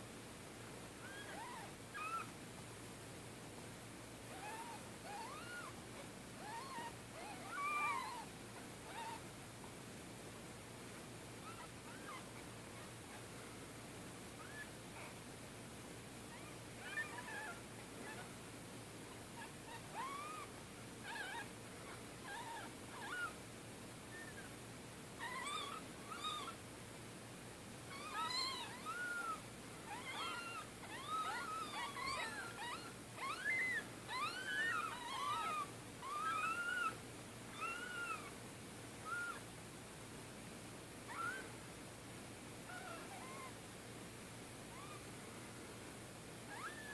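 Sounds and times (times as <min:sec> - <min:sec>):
kittens mewing: 0:27.9 - 0:38.4.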